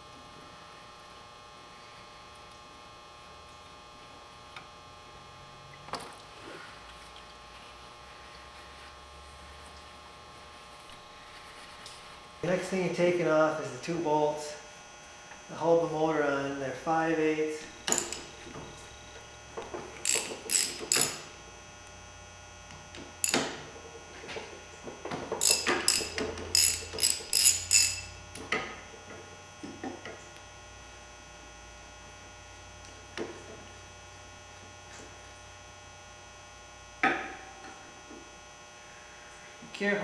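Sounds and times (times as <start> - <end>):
electrical hum: 0.0 - 40.0
wrench clicking on bolts: 17.9 - 18.3, 20.0 - 21.2, 23.2 - 23.4, 25.4 - 28.1.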